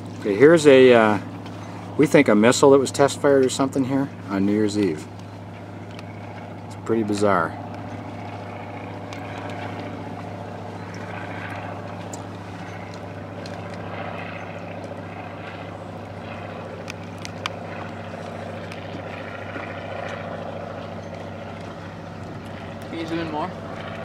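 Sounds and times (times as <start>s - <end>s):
boat engine humming: 0.0s - 24.0s
small handling clicks: 16.8s - 17.6s.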